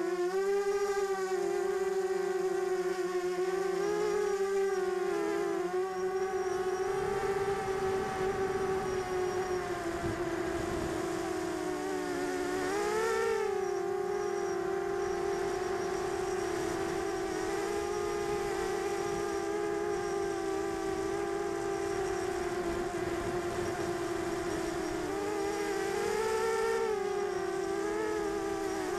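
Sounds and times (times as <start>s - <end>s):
quadcopter propellers whining: 0.0s - 28.9s
wind rumble: 6.1s - 28.9s.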